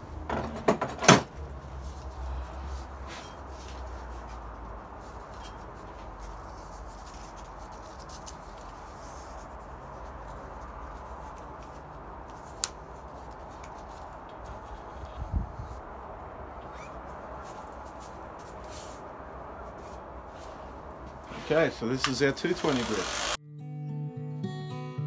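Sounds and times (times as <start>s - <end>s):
abrasive belt rubbing and rustling: 1.6s - 16.0s, 16.6s - 22.0s.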